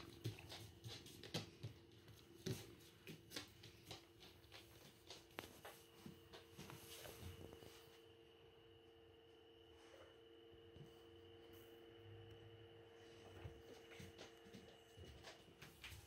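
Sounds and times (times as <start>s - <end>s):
faint steady hum: 0.0s - 16.0s.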